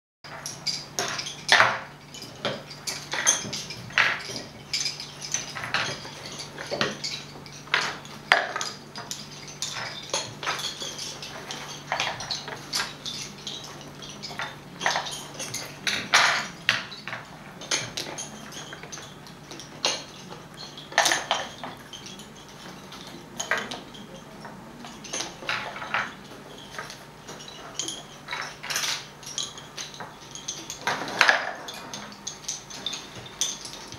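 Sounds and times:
faint steady hum: 0:00.3 - 0:33.9
wooden bobbins clicking: 0:00.3 - 0:33.9.

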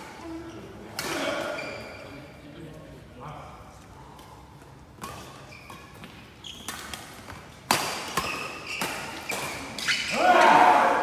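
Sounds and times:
racket hitting shuttlecock: 0:05.0 - 0:10.2.

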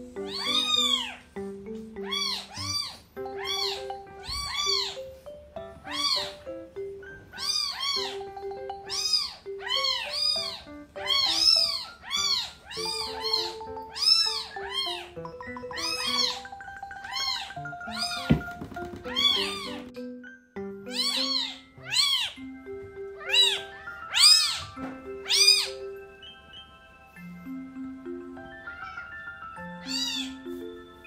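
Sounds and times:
background music sustained notes: 0:00.0 - 0:31.0
kitten meowing: 0:00.2 - 0:01.2, 0:02.0 - 0:05.0, 0:05.8 - 0:06.3, 0:07.4 - 0:08.2, 0:08.9 - 0:15.1, 0:17.1 - 0:19.9, 0:20.9 - 0:22.4, 0:23.2 - 0:25.7, 0:29.8 - 0:30.5.

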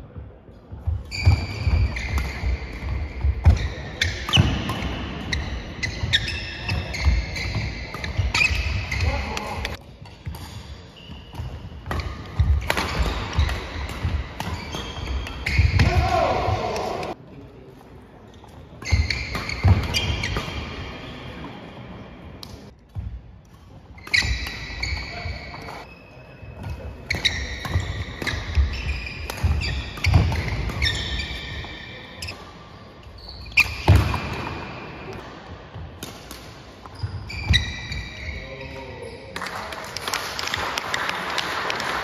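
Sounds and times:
shoes squeaking on wooden floor: 0:00.9 - 0:16.8, 0:24.0 - 0:32.4, 0:36.9 - 0:39.2
racket hitting shuttlecock: 0:01.1 - 0:17.2, 0:26.6 - 0:32.4, 0:33.6 - 0:35.3
applause: 0:39.4 - 0:42.0.

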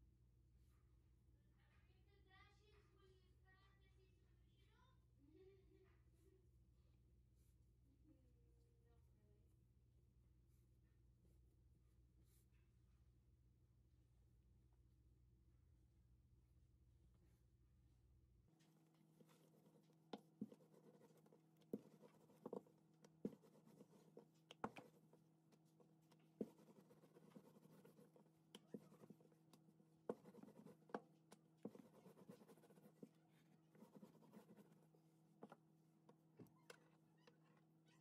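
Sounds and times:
rolling pin rolling dough: 0:18.6 - 0:37.0.

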